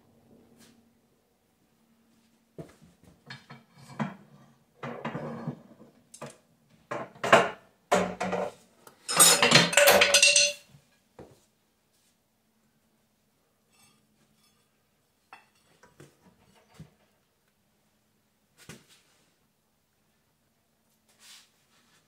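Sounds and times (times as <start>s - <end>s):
heavy steel parts clanking: 9.1s - 10.6s.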